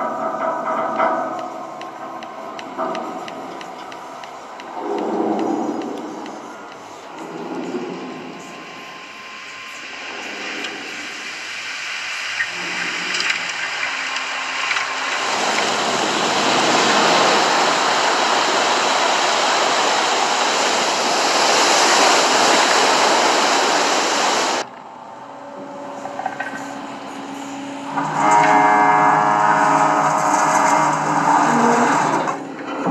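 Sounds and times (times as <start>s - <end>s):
water rushing and churning: 0.0s - 32.9s.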